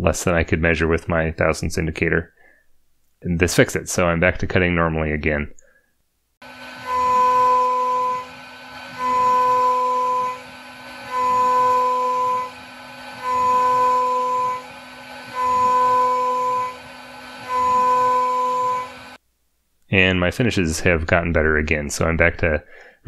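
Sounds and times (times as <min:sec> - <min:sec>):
mill cutting metal with singing tone: 0:06.4 - 0:19.2
spindle hum: 0:06.4 - 0:19.2.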